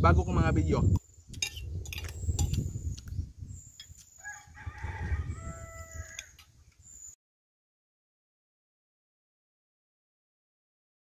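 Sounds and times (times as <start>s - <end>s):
rooster crowing: 4.2s - 6.4s.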